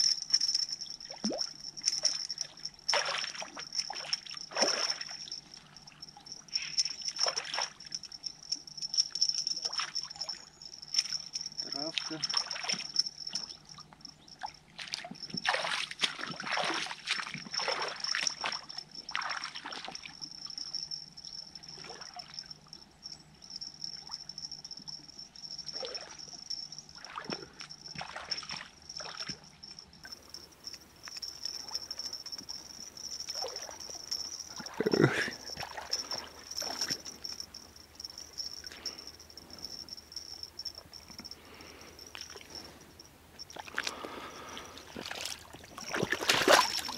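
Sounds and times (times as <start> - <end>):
water splashing and sloshing: 0.0 - 5.7, 11.9 - 13.4, 14.4 - 20.1, 27.0 - 29.5, 30.1 - 38.8, 43.4 - 46.9.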